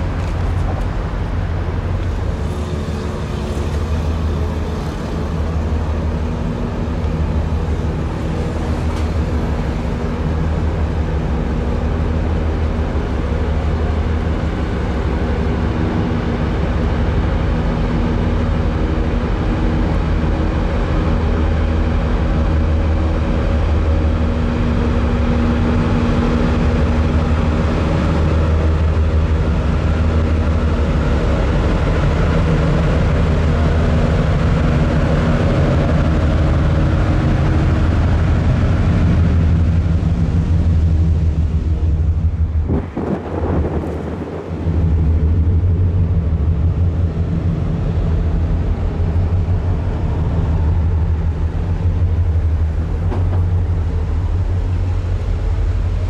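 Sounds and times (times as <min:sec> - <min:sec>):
ship engines droning: 0:00.0 - 0:56.0.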